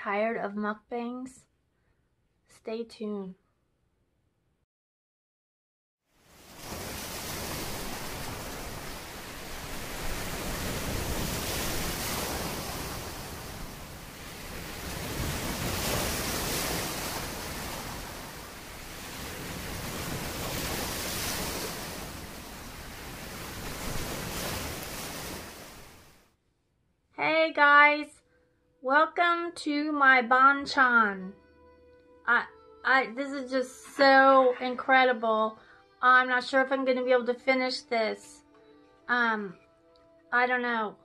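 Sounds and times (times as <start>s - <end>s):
water washing over sand: 6.2s - 26.2s.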